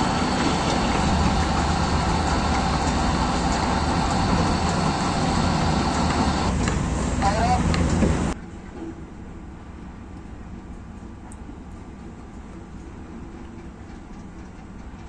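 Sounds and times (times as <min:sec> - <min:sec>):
broad noisy wash: 0:00.0 - 0:11.2
low machinery rumble: 0:00.0 - 0:15.0.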